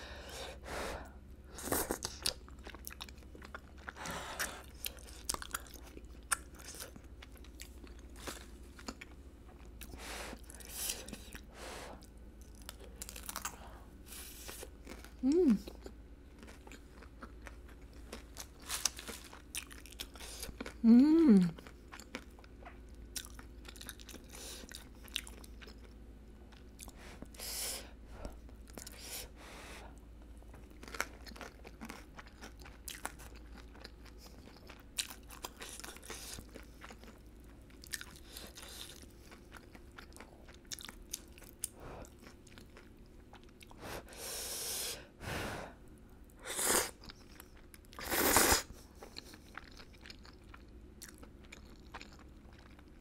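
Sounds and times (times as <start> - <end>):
chewing and biting food: 1.6 - 20.8, 21.5 - 27.4, 28.2 - 29.1, 29.9 - 44.1, 46.3 - 53.0
slurping noodles: 48.0 - 48.7.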